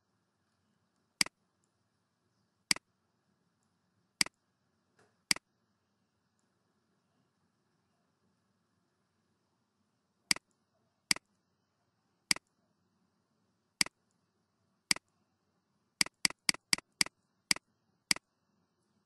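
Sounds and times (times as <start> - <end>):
computer mouse button clicks: 16.0 - 18.2.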